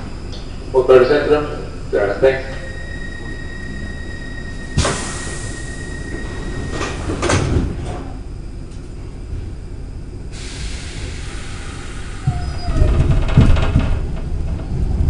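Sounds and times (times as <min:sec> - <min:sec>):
steady high tone: 0:01.6 - 0:07.2
doors banging shut: 0:12.3 - 0:14.6.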